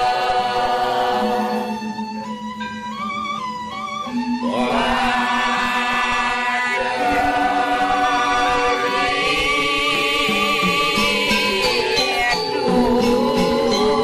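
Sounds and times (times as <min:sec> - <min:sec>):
group of voices chanting: 0:04.5 - 0:14.0.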